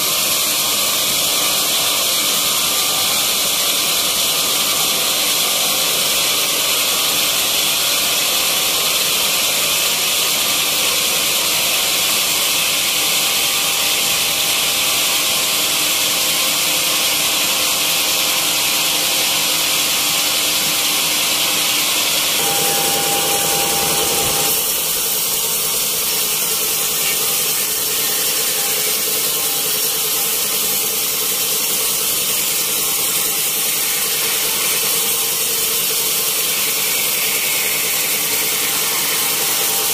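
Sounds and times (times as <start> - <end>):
band saw cutting log: 12.6 - 39.9
brief tone: 22.4 - 24.9.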